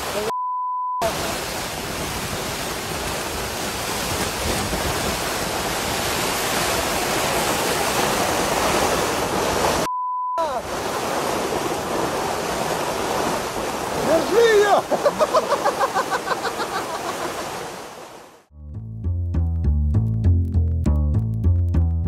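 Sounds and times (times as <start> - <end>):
heavy rain battering a tent: 0.0 - 0.3, 1.0 - 18.2
censor bleep: 0.3 - 1.1, 9.9 - 10.5
gusting wind: 1.1 - 9.9, 10.6 - 18.4.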